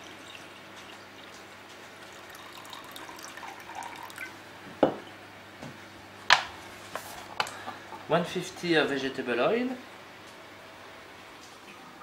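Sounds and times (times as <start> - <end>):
water trickling into a saucepan: 0.0 - 4.4.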